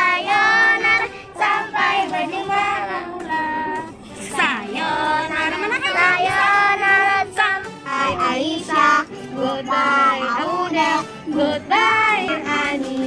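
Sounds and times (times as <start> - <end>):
children singing: 0.0 - 13.0.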